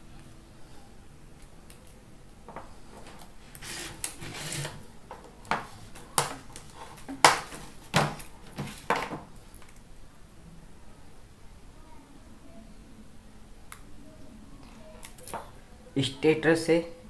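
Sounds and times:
paper rustling: 0:03.0 - 0:09.8
stiff paper snapping: 0:05.9 - 0:09.8.

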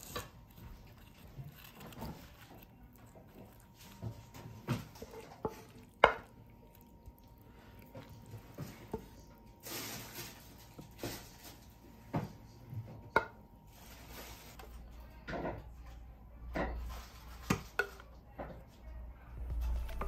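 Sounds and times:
wooden spoon scraping a bowl: 0:00.0 - 0:11.8, 0:13.7 - 0:14.9.

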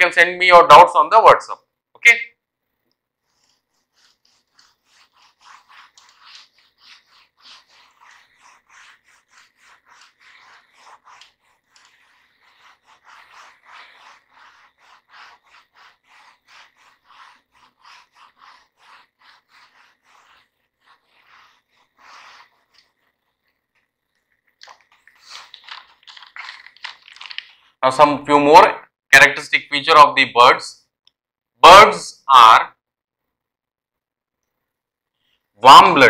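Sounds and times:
duster scrubbing whiteboard: 0:03.2 - 0:27.8.

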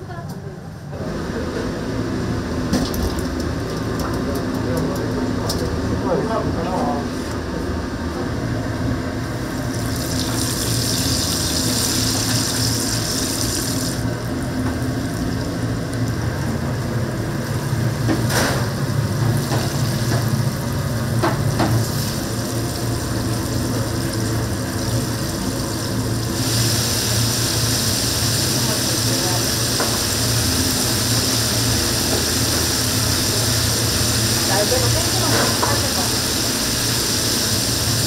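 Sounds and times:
chicken sizzling in hot oil: 0:09.4 - 0:38.0.

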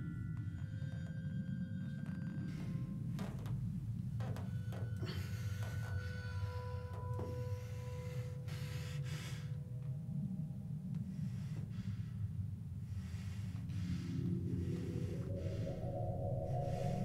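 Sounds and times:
steady low drone: 0:00.0 - 0:17.0
man breathing hard through nose: 0:04.7 - 0:09.6, 0:11.0 - 0:17.0
low pitched tone: 0:14.3 - 0:17.0.

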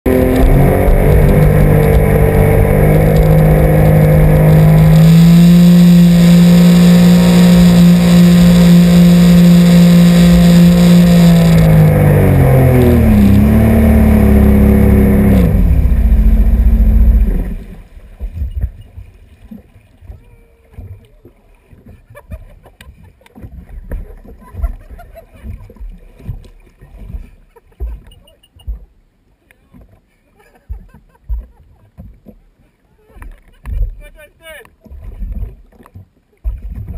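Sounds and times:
watercraft engine running hard: 0:00.1 - 0:22.3
faint water sounds: 0:00.1 - 0:36.9.

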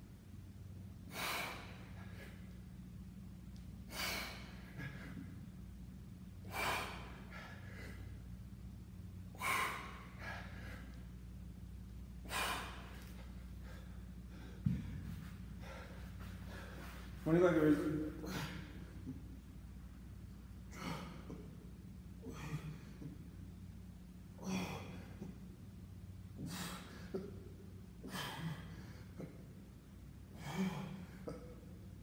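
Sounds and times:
steady low hum: 0:00.0 - 0:32.0
man exhaling forcefully: 0:01.1 - 0:02.3, 0:03.9 - 0:04.8, 0:06.4 - 0:08.0, 0:09.3 - 0:10.9, 0:12.2 - 0:13.0
kettlebell thump: 0:14.6 - 0:15.1.

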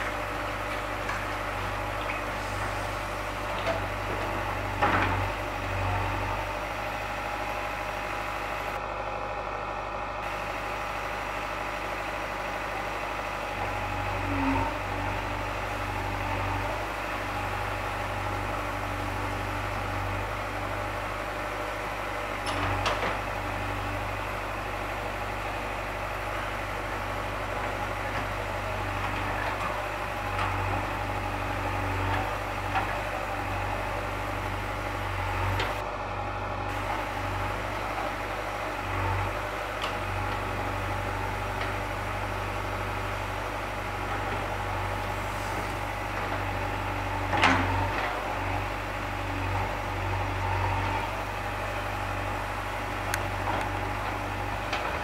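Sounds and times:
diesel engine running: 0:00.0 - 0:55.0.

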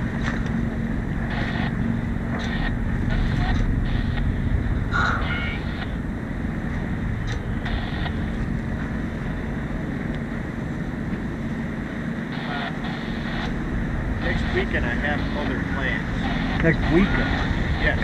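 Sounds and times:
faint steady hum: 0:00.0 - 0:18.0
wind noise on microphone: 0:00.0 - 0:18.0
faint voices: 0:14.1 - 0:18.0.

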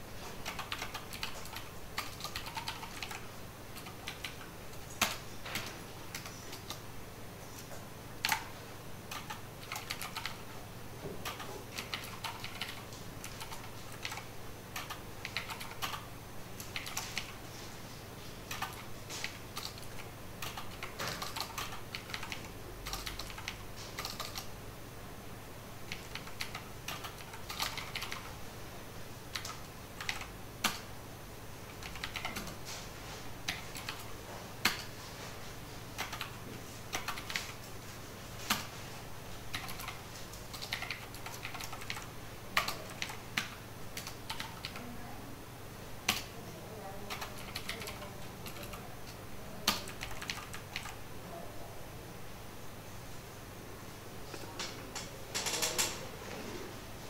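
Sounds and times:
computer keyboard typing: 0:00.4 - 0:06.8, 0:08.2 - 0:10.6, 0:11.2 - 0:17.4, 0:18.4 - 0:24.5, 0:25.8 - 0:28.4, 0:29.3 - 0:30.9, 0:31.6 - 0:32.8, 0:33.4 - 0:35.0, 0:36.0 - 0:37.7, 0:38.5 - 0:38.7, 0:39.5 - 0:44.9, 0:46.0 - 0:46.4, 0:47.0 - 0:51.0, 0:54.3 - 0:56.1.

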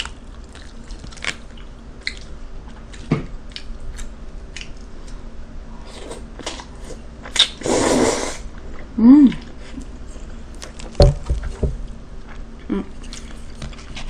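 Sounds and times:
wet chewing: 0:00.0 - 0:05.2.

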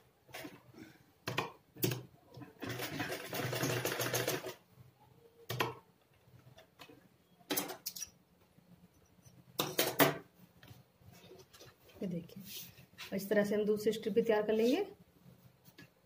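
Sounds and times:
sewing machine clatter: 0:02.6 - 0:04.6.

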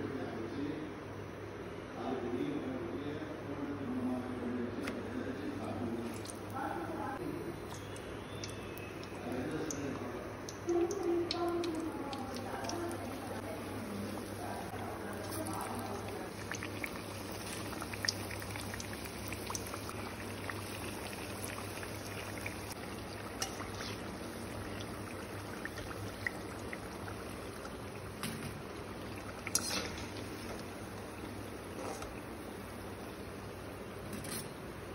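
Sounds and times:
oil popping and crackling: 0:06.0 - 0:06.8, 0:07.5 - 0:34.1
fritters deep-frying in oil: 0:06.1 - 0:34.5.

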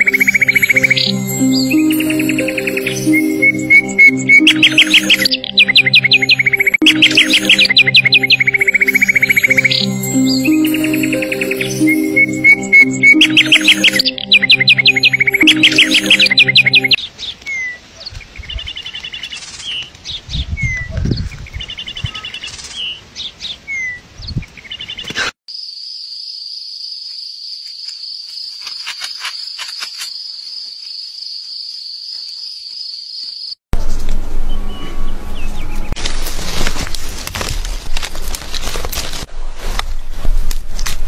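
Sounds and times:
birds chirping: 0:00.0 - 0:25.2.

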